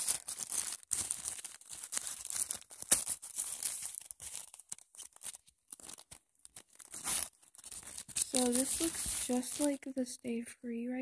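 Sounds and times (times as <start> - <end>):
plastic wrapper crinkling and tearing: 0.0 - 9.9.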